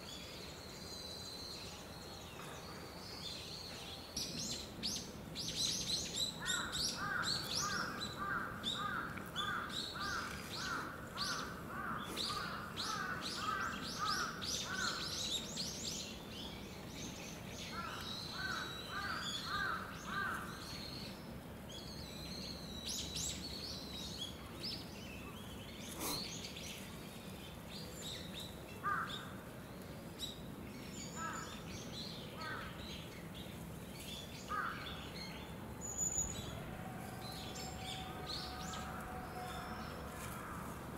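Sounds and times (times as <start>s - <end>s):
birds calling: 5.5s - 16.2s, 25.1s - 29.5s, 31.0s - 40.9s.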